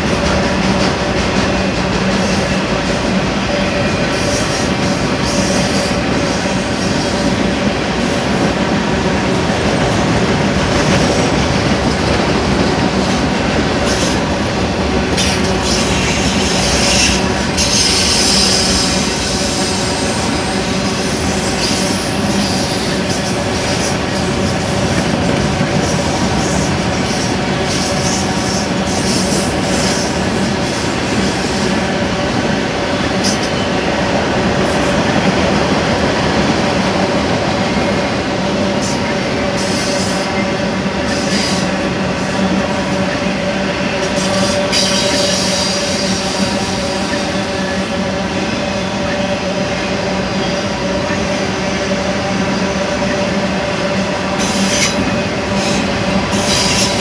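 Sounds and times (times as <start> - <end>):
train wheels rumbling on rails: 0.0 - 57.0
high wheel squeal: 44.0 - 47.8.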